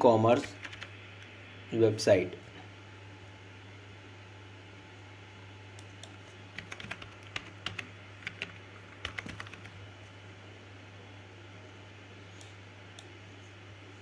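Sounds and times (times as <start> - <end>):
low steady hum: 0.0 - 14.0
typing on computer keyboard: 0.4 - 0.9, 6.5 - 9.8.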